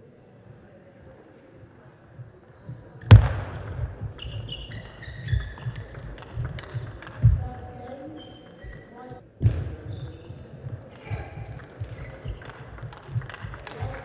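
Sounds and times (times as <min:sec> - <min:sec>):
footwork thuds: 0:02.2 - 0:07.8, 0:08.6 - 0:13.9
shoes squeaking on floor: 0:02.2 - 0:14.0
table tennis ball clicking: 0:03.6 - 0:09.0, 0:10.6 - 0:14.0.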